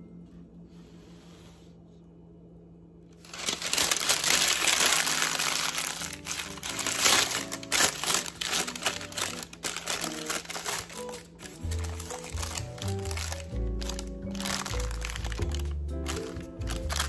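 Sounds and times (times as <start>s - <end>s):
paper crinkling: 3.2s - 17.0s
background music: 4.3s - 17.0s.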